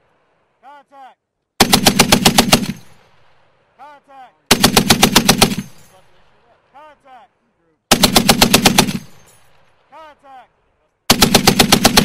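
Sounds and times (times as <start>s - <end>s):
machine gun bursts: 1.6s - 2.9s, 4.5s - 5.9s, 7.9s - 9.4s, 11.1s - 12.0s.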